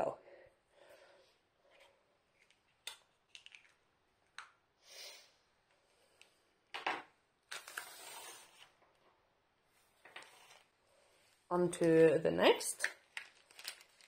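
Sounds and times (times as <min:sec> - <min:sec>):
packaging rustling: 0:13.0 - 0:14.0.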